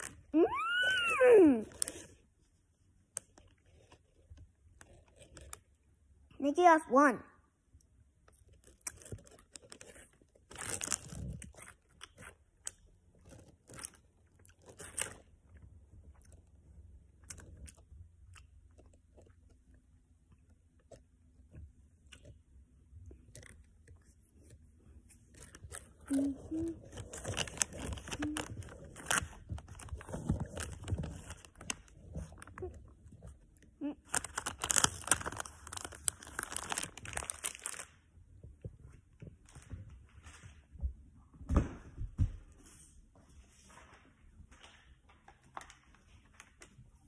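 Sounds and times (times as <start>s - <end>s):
child chewing gummy candy: 0.0s - 2.3s, 3.1s - 6.0s, 8.2s - 37.9s.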